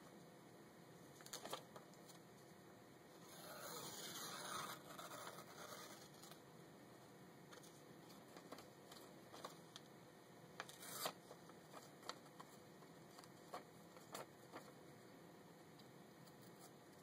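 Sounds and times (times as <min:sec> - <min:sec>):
paper rustling: 0:01.2 - 0:02.2, 0:07.5 - 0:09.8, 0:10.6 - 0:14.8.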